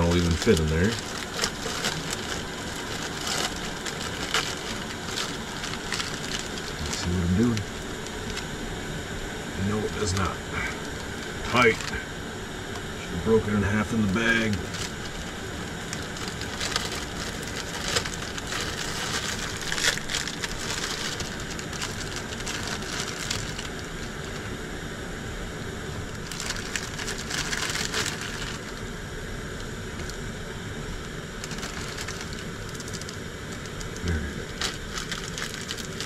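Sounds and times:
plastic wrapper crinkling: 0:00.0 - 0:08.5, 0:10.0 - 0:12.0, 0:14.4 - 0:24.5, 0:26.0 - 0:28.8, 0:31.4 - 0:36.0
dry noodle block crunching: 0:00.0 - 0:08.6, 0:10.0 - 0:12.1, 0:14.4 - 0:24.6, 0:26.0 - 0:28.9, 0:31.4 - 0:36.0.

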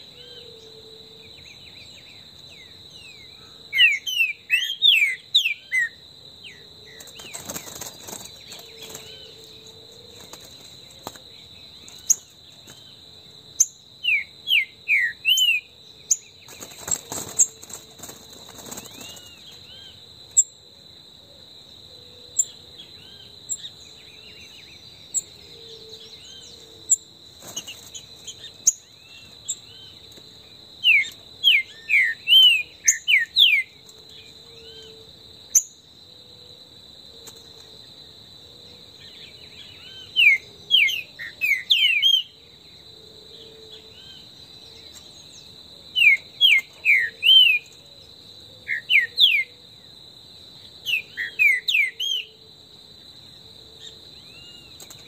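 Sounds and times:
high insect drone: 0:00.0 - 0:55.0
birds whistling song: 0:01.3 - 0:09.8, 0:13.6 - 0:17.6, 0:30.8 - 0:33.8, 0:39.0 - 0:42.4, 0:43.7 - 0:47.8, 0:48.6 - 0:49.6, 0:50.8 - 0:52.4.

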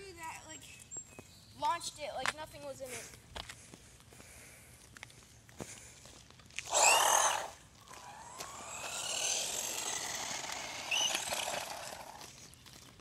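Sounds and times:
tyre noise on asphalt: 0:00.5 - 0:13.0
rc car motor whine: 0:06.7 - 0:12.3.

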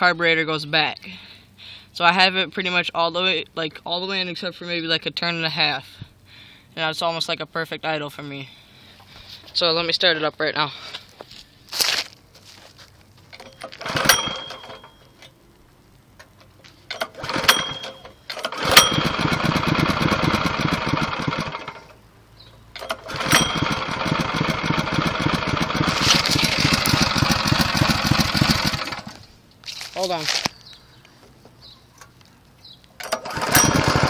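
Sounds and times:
engine pull-start: 0:13.3 - 0:15.0, 0:16.9 - 0:22.0, 0:22.7 - 0:29.3, 0:33.0 - 0:34.0
small engine idling: 0:13.3 - 0:15.1, 0:16.9 - 0:29.3, 0:33.0 - 0:34.0.

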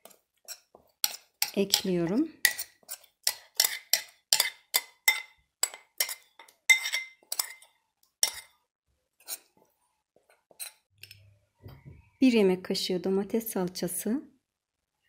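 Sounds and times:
metal spoon scraping a bowl: 0:00.0 - 0:08.6, 0:09.2 - 0:09.5, 0:10.3 - 0:11.3.

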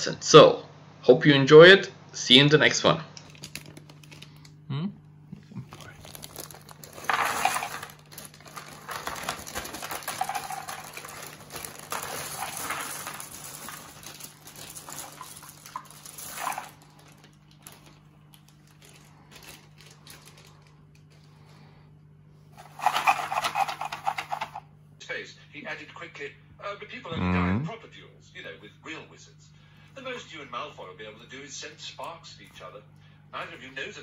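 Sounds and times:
faint low hum: 0:00.0 - 0:34.0
puzzle pieces rattling: 0:03.2 - 0:04.4, 0:05.7 - 0:18.0, 0:22.6 - 0:24.6
plastic bag crinkling: 0:03.2 - 0:04.5, 0:05.5 - 0:21.2, 0:22.6 - 0:24.6
puzzle pieces clicking: 0:06.1 - 0:16.9, 0:22.6 - 0:24.6.

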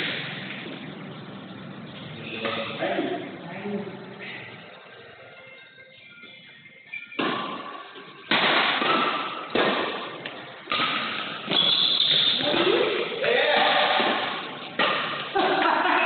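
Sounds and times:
racket hitting shuttlecock: 0:07.2 - 0:15.6.

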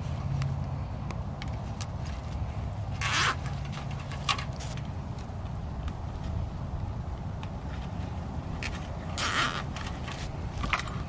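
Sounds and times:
rustling wire and dry leaves: 0:00.0 - 0:11.0
steady low rumble: 0:00.0 - 0:11.0
zip tie ratcheting: 0:03.0 - 0:04.8, 0:08.6 - 0:10.3.

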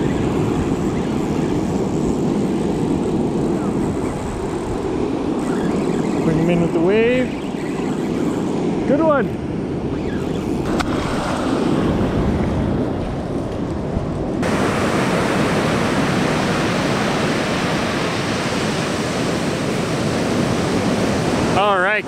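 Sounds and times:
wind on microphone: 0:00.0 - 0:22.0
ocean surf washing up beach: 0:10.6 - 0:22.0.

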